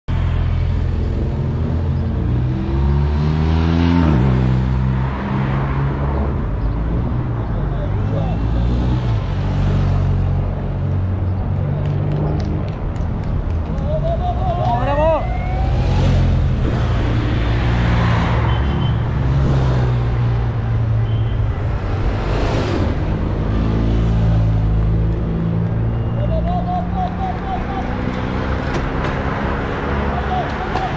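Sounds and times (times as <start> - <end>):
motorcycle passing by: 1.5 - 5.9, 15.1 - 20.8.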